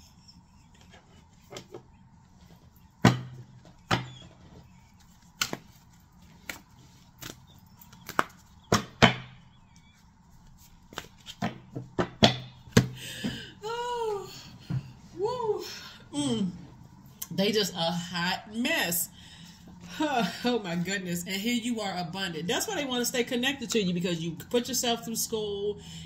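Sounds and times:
cards slapping on table: 5.4s - 5.8s, 6.4s - 6.6s, 8.0s - 9.2s.

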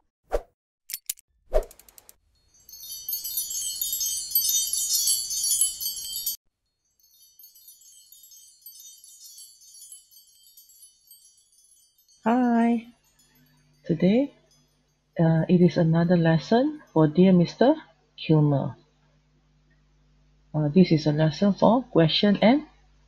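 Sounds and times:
quick clicks: 0.9s - 2.2s
tinkling chimes: 2.4s - 17.0s.

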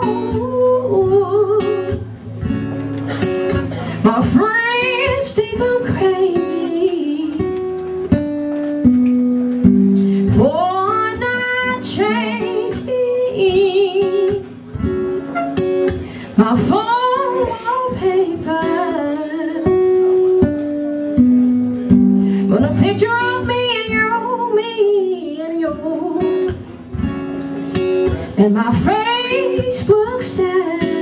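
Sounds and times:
woman singing ballad: 0.0s - 2.1s, 4.0s - 7.6s, 10.1s - 14.5s, 16.4s - 19.8s, 22.4s - 26.6s, 28.4s - 31.0s
strummed acoustic guitar: 0.0s - 31.0s.

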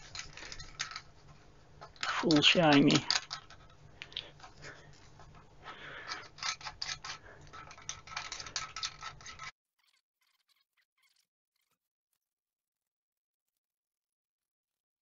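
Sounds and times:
light metal clicks and scraping: 0.0s - 9.5s.

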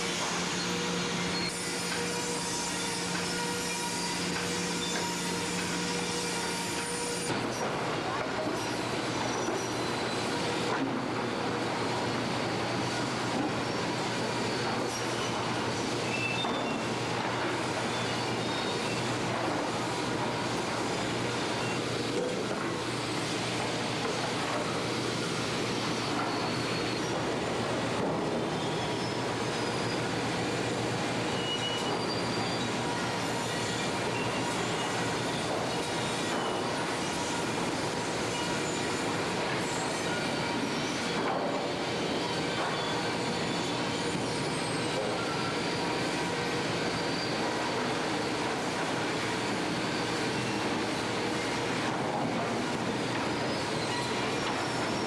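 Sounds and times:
high metallic squeals: 0.0s - 7.3s, 13.8s - 41.2s, 42.0s - 48.4s, 53.0s - 55.0s
sawmill machinery running: 0.0s - 55.0s.

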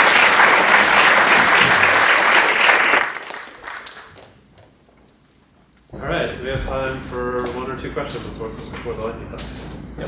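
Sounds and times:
audience applauding: 0.0s - 4.3s.

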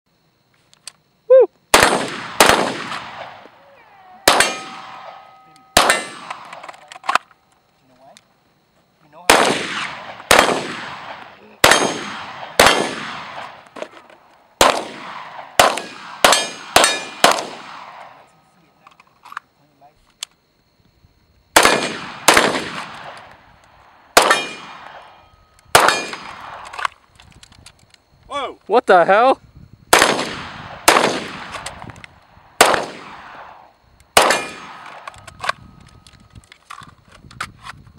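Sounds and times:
echoing gunshots: 1.7s - 3.5s, 4.2s - 7.2s, 9.2s - 18.3s, 21.5s - 26.9s, 29.9s - 35.5s
steel target ringing: 4.4s - 6.1s.

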